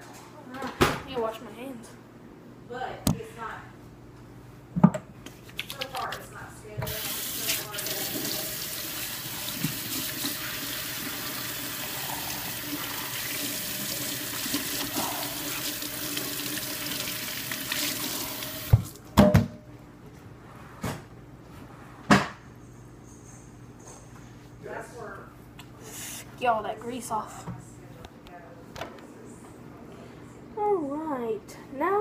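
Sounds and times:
faucet running into metal sink: 6.8s - 18.8s.

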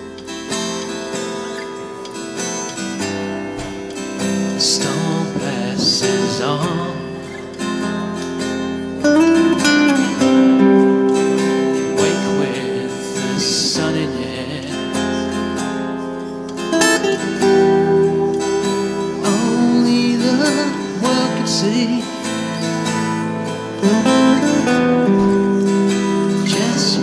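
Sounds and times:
acoustic guitar chords ringing: 0.0s - 27.0s.

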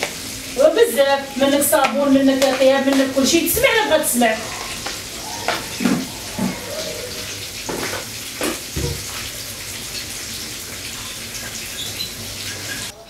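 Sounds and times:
tap running into sink: 7.7s - 9.2s.

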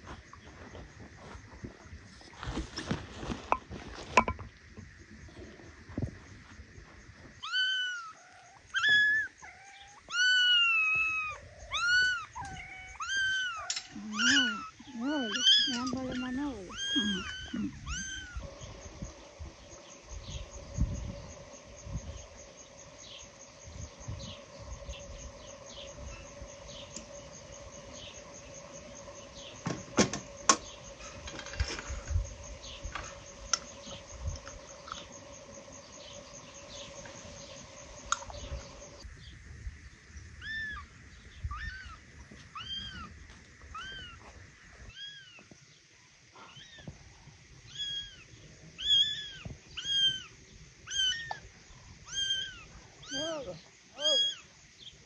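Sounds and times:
insect drone with chirping: 0.0s - 55.0s
cat meowing: 7.4s - 14.7s, 54.0s - 54.4s.

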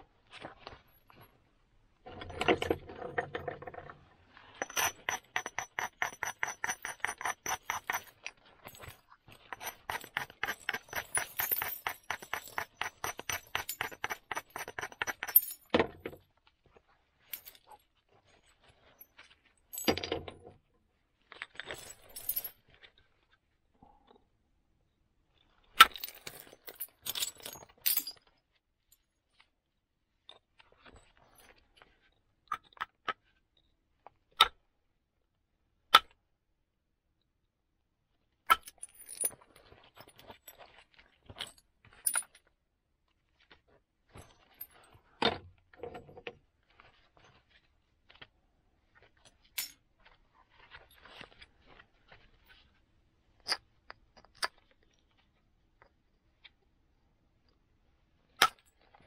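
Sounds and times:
antler tool clinking on flint: 4.6s - 16.0s.

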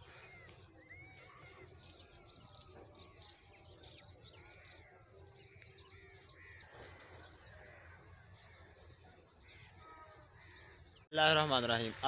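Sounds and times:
faint birds calling: 0.0s - 12.0s.

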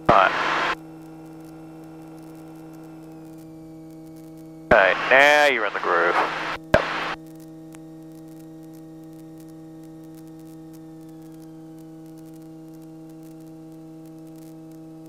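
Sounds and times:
faint high whine: 0.0s - 0.8s, 4.7s - 7.2s
electrical hum with hiss: 0.0s - 15.0s
faint crackle: 0.0s - 15.0s.

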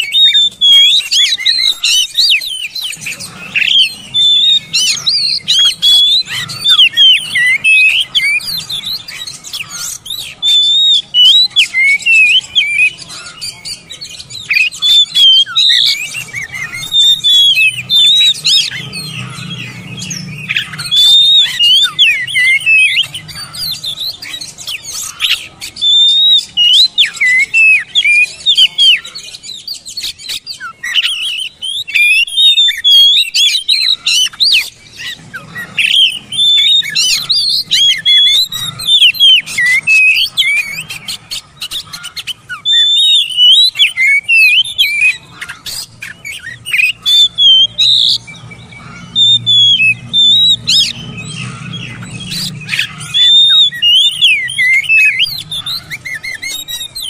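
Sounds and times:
bird whistling song: 0.0s - 57.0s.

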